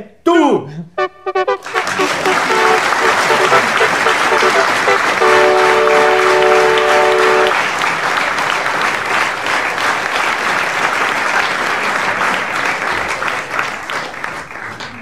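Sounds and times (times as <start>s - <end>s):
held chord: 1.0s - 7.6s
audience applauding: 1.3s - 15.0s.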